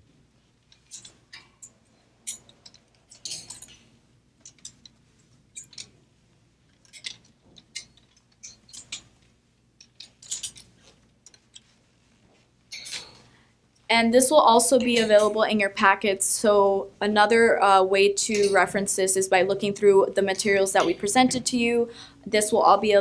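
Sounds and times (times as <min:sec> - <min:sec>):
plastic hangers clicking on wire: 0:02.3 - 0:03.8, 0:06.7 - 0:11.8, 0:12.7 - 0:13.2
fabric rustling: 0:10.0 - 0:13.4.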